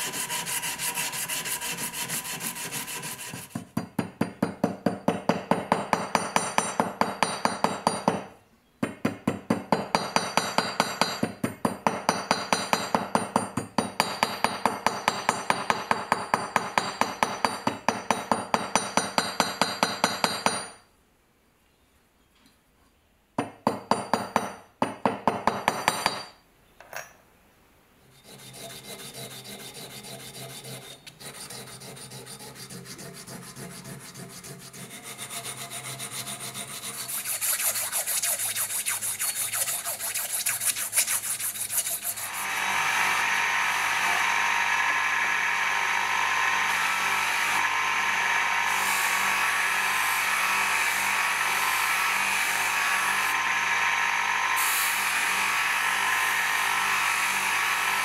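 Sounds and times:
bench polishing motor: 0.0 - 3.6, 28.2 - 58.0
scraping rub on steel: 0.0 - 3.8, 28.0 - 42.5.

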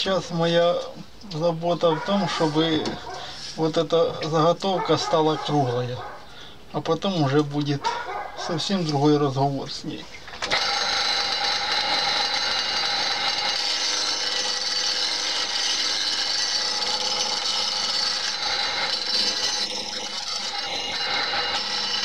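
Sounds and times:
chisel scraping spinning wood: 1.8 - 5.2, 10.4 - 22.0
wood lathe running: 10.4 - 22.0.

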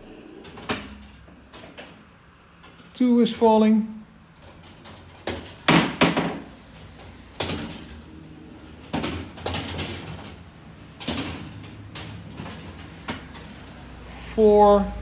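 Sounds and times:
balls rolling on metal tracks: 4.3 - 14.1.

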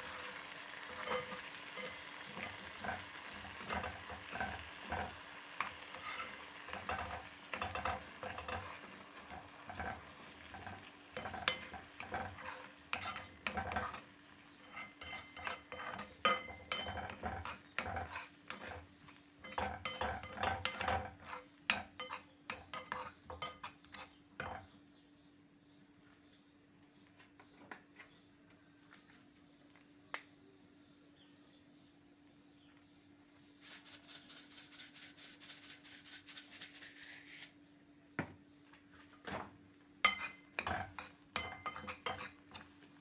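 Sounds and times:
eggs sizzling: 0.0 - 24.6, 40.0 - 43.0
metal spoon scraping frying pan: 0.0 - 24.7, 40.0 - 42.8.

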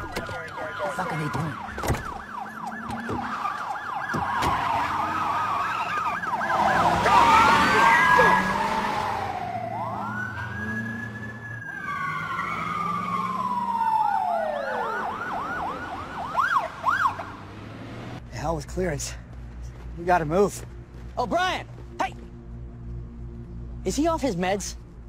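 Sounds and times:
police sirens: 0.0 - 18.2.

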